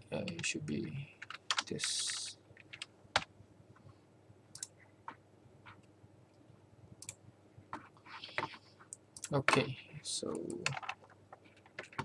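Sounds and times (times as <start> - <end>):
computer mouse clicks: 4.5 - 4.8, 7.0 - 7.2.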